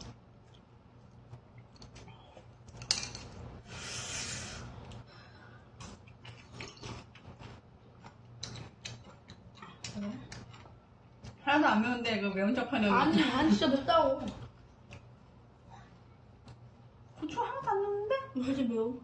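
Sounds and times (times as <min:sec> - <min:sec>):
chewing clicks: 0:08.0 - 0:11.4.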